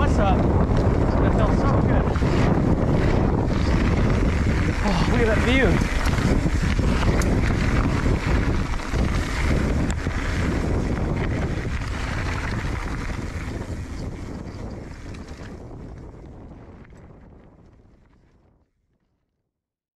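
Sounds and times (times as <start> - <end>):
tyres rumbling on gravel: 0.0 - 16.6
wind on microphone: 0.0 - 18.7.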